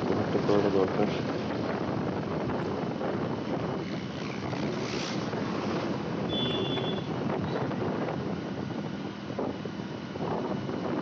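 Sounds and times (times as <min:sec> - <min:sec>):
motorcycle engine running: 0:00.0 - 0:11.0
wind buffeting microphone: 0:00.0 - 0:11.0
short high-pitched beep: 0:06.3 - 0:07.1.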